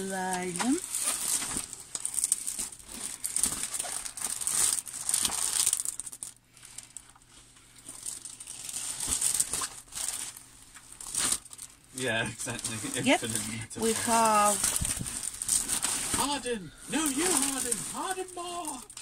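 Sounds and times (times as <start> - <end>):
plastic film crinkling: 0.0 - 19.0.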